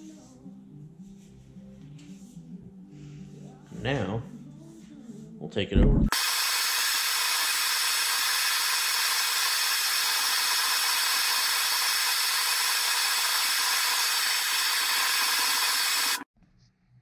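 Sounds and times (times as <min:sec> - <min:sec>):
gas torch hissing: 0:06.1 - 0:16.3.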